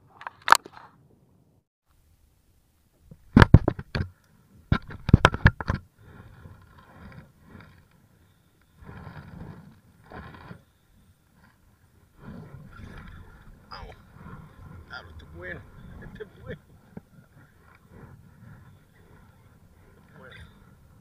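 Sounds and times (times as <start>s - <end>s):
sharp clicks and knocks: 3.0s - 4.1s, 4.7s - 5.9s.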